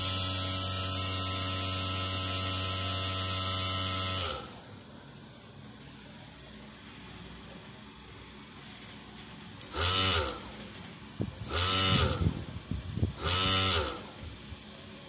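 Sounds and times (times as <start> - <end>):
drill press motor whining: 0.0 - 4.8, 9.6 - 14.8.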